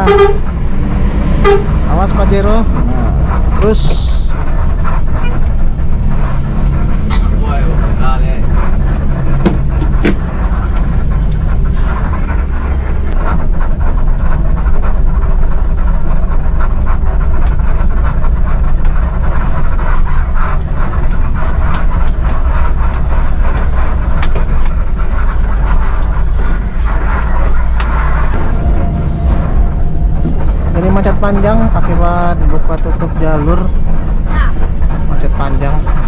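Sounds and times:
bus diesel engine droning: 0.0s - 36.0s
clicks and rattles in cab: 9.2s - 10.3s.

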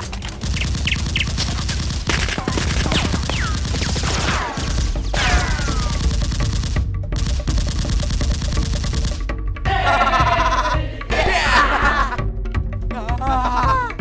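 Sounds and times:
automatic gunfire bursts: 0.0s - 9.2s
low music bed: 4.8s - 14.0s.

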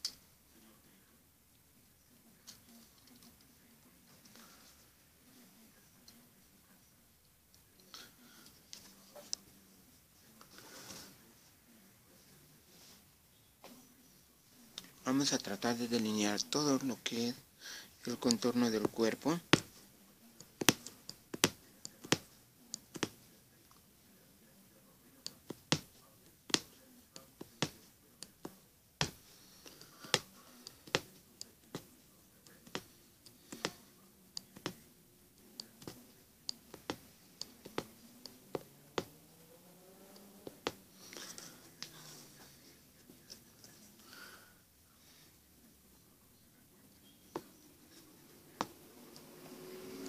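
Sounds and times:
punch needle clicking through fabric: 20.6s - 23.2s, 25.3s - 25.9s, 26.5s - 26.7s.

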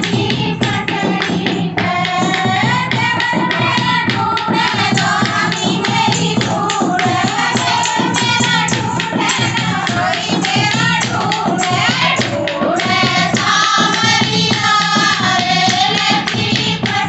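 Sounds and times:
steady beat: 0.0s - 17.0s
women singing folk song: 0.0s - 17.0s.

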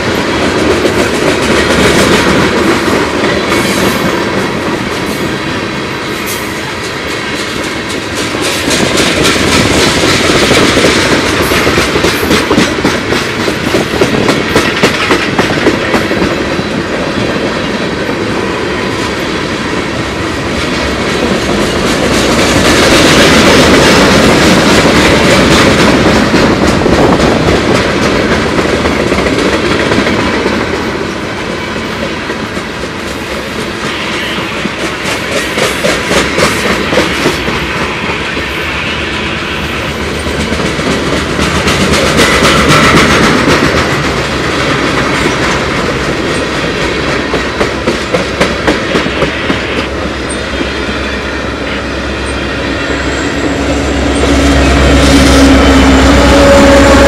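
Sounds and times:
freight train rolling past: 0.0s - 57.0s
wheels clicking over rail joints: 6.6s - 18.2s.

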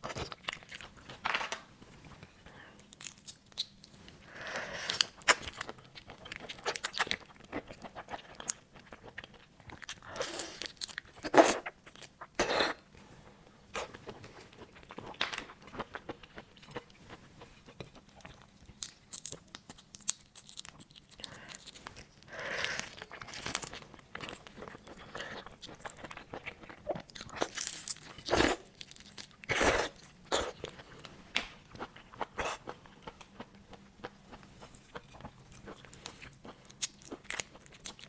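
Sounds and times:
chewing: 2.2s - 12.4s, 13.7s - 31.1s, 31.7s - 38.0s
prawn shells cracking and tearing: 2.8s - 3.8s, 18.6s - 24.6s, 27.1s - 30.7s.

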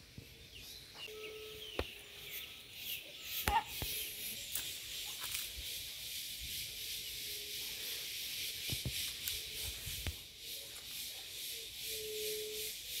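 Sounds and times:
steady high hiss: 4.0s - 13.0s.

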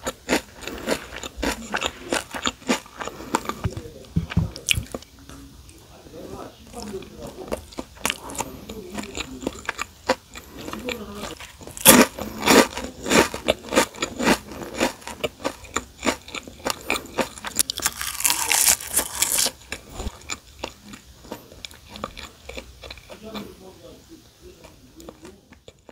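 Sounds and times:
person crunching crisp chips: 0.0s - 3.6s, 7.7s - 21.0s
soft chewing: 0.0s - 25.9s.

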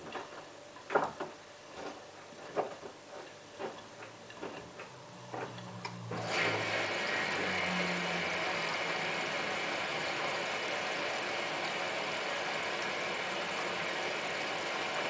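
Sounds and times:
low motor hum: 3.7s - 15.0s.

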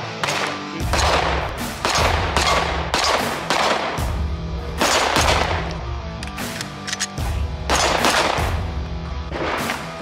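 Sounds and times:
pistol shots: 0.2s - 4.2s, 4.8s - 5.8s, 6.4s - 8.6s.

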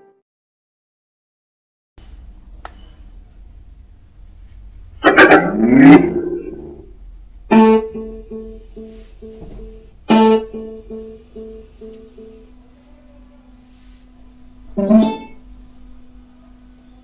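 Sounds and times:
guitar music: 5.0s - 6.9s, 7.5s - 12.6s, 14.7s - 15.4s.

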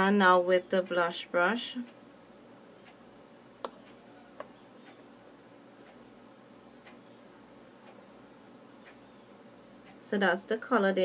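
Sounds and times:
faint brush ticks: 3.6s - 5.2s.

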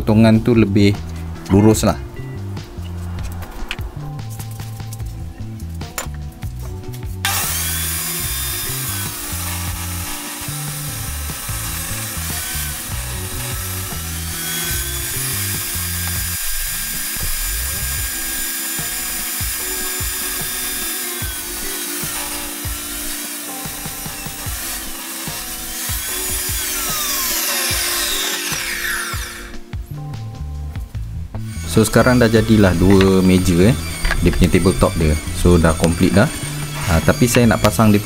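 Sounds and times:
background music: 0.0s - 38.0s
table saw cutting wood: 7.2s - 29.7s, 31.4s - 38.0s.

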